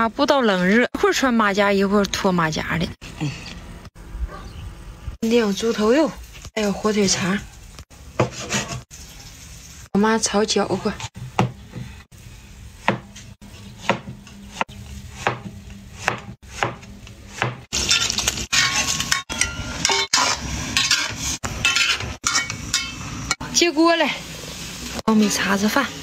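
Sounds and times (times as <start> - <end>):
vegetables sizzling in a wok: 5.3 - 26.0
metal spatula scraping a pan: 8.2 - 9.3, 17.8 - 23.4
cleaver chopping on wooden board: 12.8 - 13.1, 13.8 - 17.7.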